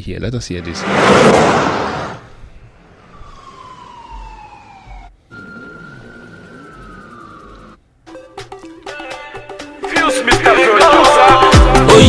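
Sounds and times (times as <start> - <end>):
siren wailing: 2.4 - 7.8.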